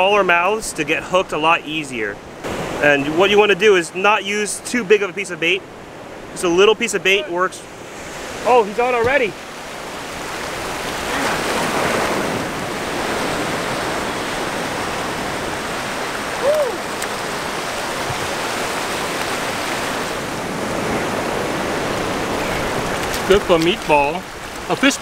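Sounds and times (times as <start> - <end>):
ocean waves breaking on beach: 0.0 - 25.0
rising-and-falling call: 16.2 - 17.0.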